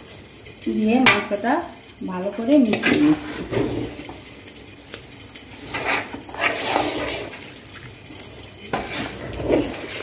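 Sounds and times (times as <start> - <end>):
spatula stirring rice in metal pot: 4.9 - 10.0.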